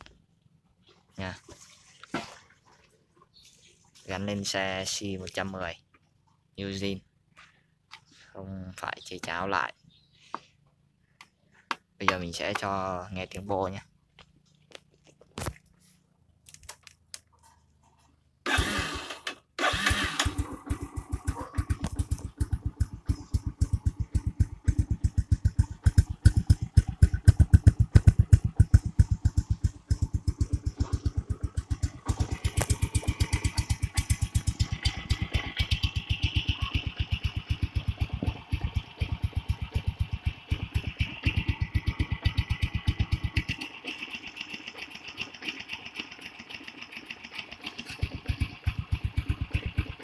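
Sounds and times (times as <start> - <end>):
motorcycle engine starting and idling: 18.4 - 50.0.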